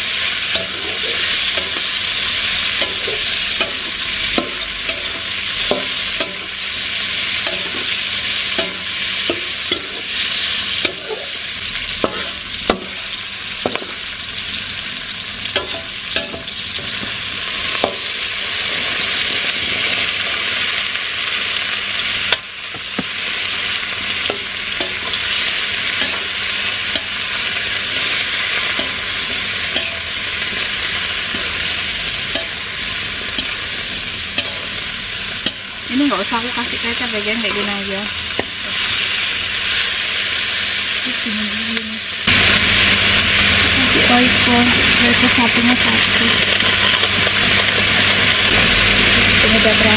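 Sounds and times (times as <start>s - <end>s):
hot oil sizzling in wok: 0.0s - 49.9s
metal spatula scraping wok: 12.0s - 14.0s, 24.2s - 39.0s.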